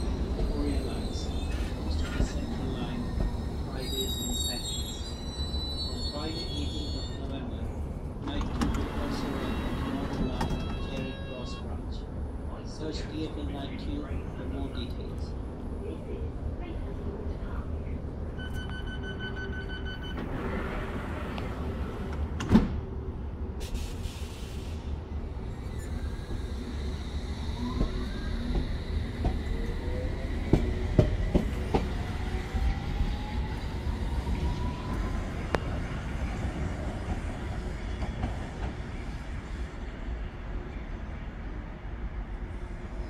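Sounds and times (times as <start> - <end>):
train doors shutting: 0.0 - 7.4, 8.2 - 11.4, 18.4 - 22.9, 25.5 - 39.2
door-closing beeps: 9.5 - 11.2, 18.4 - 20.4.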